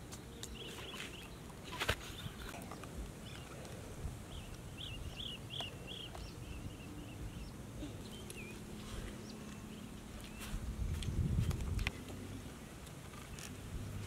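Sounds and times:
bird chirping: 0.3 - 3.6, 4.3 - 10.6.

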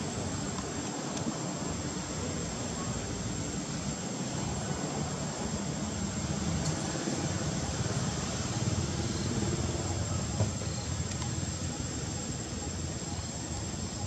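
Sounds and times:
faint high whine: 0.0 - 14.0.

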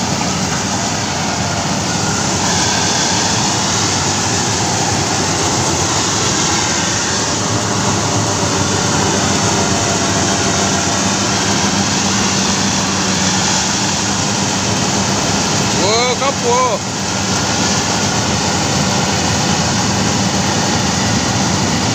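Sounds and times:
low hum: 0.0 - 15.8
combine harvester engine droning: 0.0 - 21.9.

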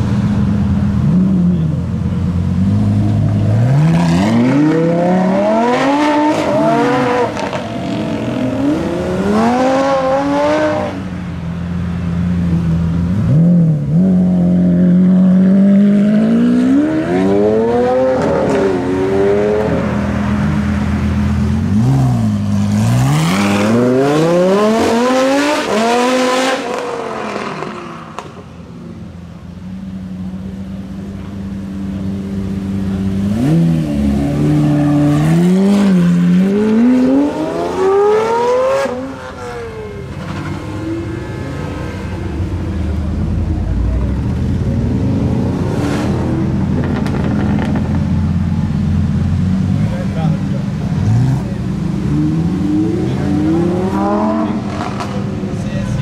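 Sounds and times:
car engines revving and accelerating: 0.0 - 56.0
car engine idling: 39.2 - 45.6.

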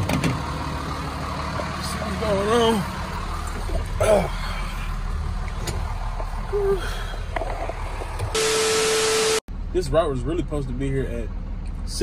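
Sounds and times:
truck engine idling: 0.0 - 8.4
loud hiss with humming tone: 8.4 - 9.4.

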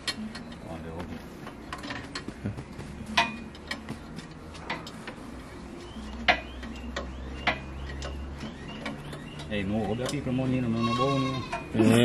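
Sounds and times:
tools clinking on engine metal: 1.4 - 2.3, 3.0 - 5.4, 6.2 - 12.0.

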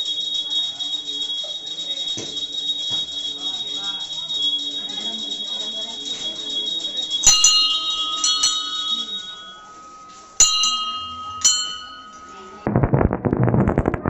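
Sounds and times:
metal bell ringing: 3.1 - 12.7
rapid beats: 7.1 - 14.0.

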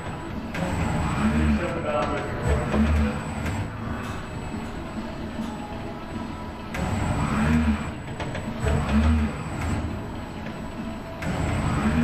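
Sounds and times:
robot arm motors whirring: 0.0 - 3.8, 6.7 - 10.0, 11.2 - 12.0.

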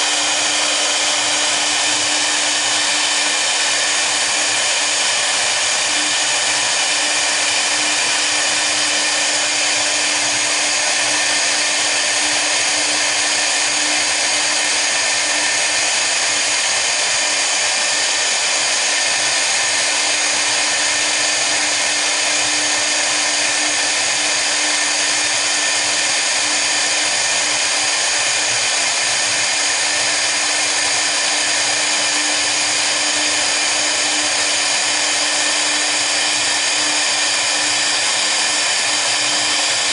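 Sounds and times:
router engraving hiss and whine: 0.0 - 39.9.

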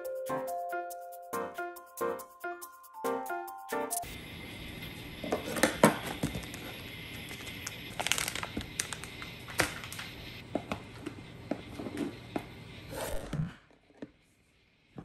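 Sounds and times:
packaging crinkling and rustling: 5.5 - 10.8.

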